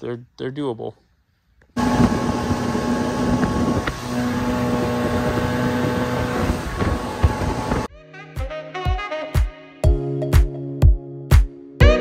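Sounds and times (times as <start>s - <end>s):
motorboat engine running: 1.8s - 7.9s
rush of boat wake: 1.8s - 7.9s
wind buffeting microphone: 1.8s - 7.9s.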